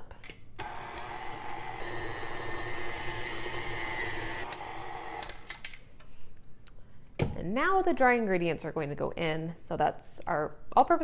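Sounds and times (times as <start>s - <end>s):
stand mixer whining: 0.6s - 5.3s.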